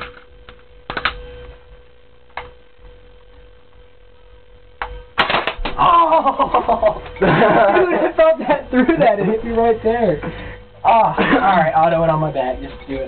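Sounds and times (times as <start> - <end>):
faint steady hum: 0.0 - 13.0
airsoft rifle shot: 5.2 - 5.8
person crying out: 5.7 - 7.8.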